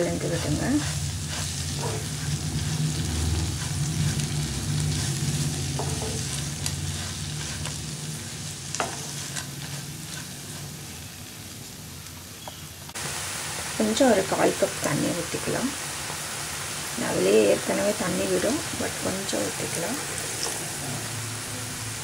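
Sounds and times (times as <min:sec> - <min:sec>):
spatula scraping and knocking pan: 0:00.0 - 0:10.9
greens sizzling in oil: 0:00.0 - 0:22.0.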